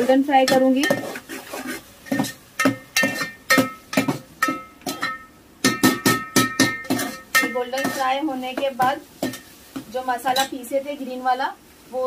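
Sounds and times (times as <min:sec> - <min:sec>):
metal spoon scraping steel pot: 0:00.0 - 0:03.6, 0:06.0 - 0:08.2
onions frying in oil: 0:00.0 - 0:12.0.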